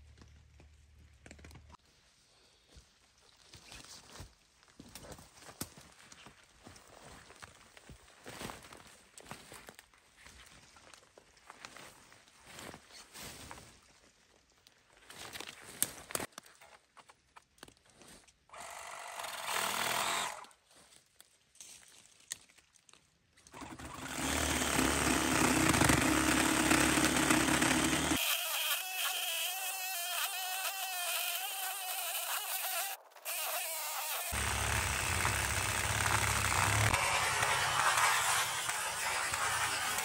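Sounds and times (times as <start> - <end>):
footsteps in dry brush: 1.8 - 17.1
reciprocating saw cutting wood: 18.6 - 20.4, 23.5 - 40.0.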